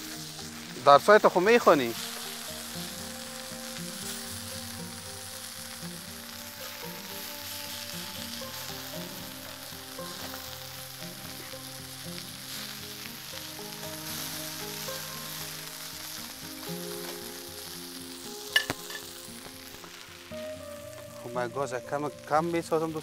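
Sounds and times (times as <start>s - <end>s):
chicken sizzling in oil: 0.0s - 23.0s.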